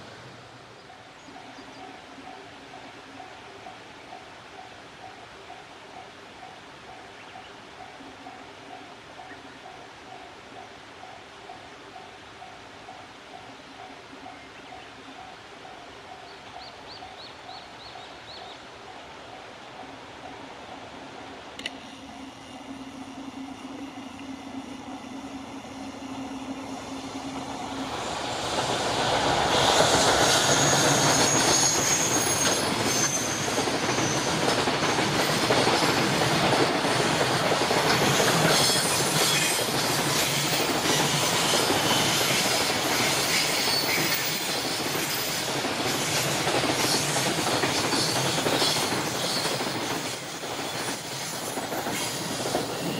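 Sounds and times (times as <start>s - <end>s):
freight train passing: 0.0s - 52.9s
high-pitched flange squeal: 21.9s - 34.4s.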